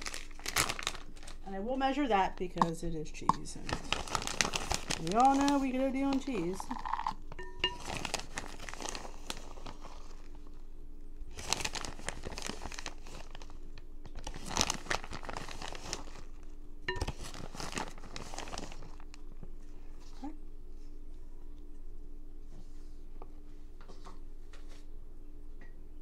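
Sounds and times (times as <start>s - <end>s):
plastic bag crinkling: 0.0s - 2.4s, 3.4s - 10.6s, 11.3s - 19.3s.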